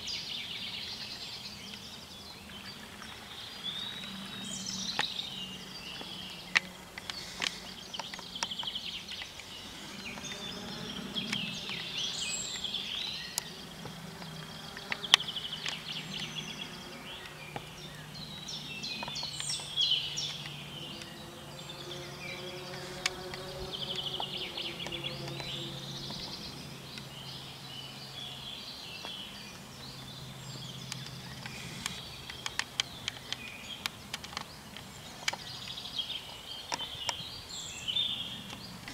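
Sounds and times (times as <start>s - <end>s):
small plane droning overhead: 0.0s - 38.9s
songbirds singing: 0.0s - 38.9s
sharp clicks: 13.3s - 18.0s, 30.9s - 35.8s.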